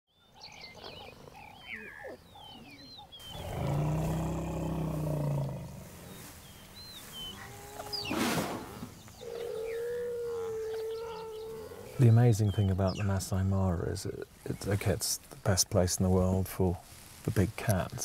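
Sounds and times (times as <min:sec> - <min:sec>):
birds chirping and whistling: 0:00.2 - 0:04.3, 0:05.7 - 0:13.2
deep animal call: 0:00.7 - 0:06.3, 0:07.2 - 0:12.1.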